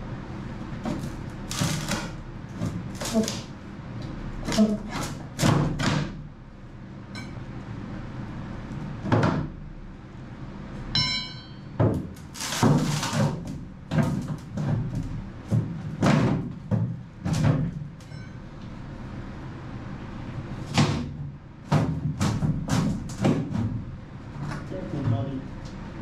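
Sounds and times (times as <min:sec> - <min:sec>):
heavy thuds on wood: 0:11.8 - 0:17.9, 0:20.7 - 0:23.9.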